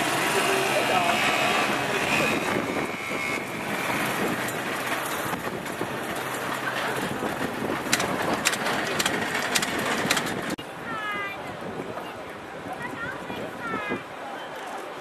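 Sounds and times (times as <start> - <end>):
vehicle engine: 0.0 - 10.6.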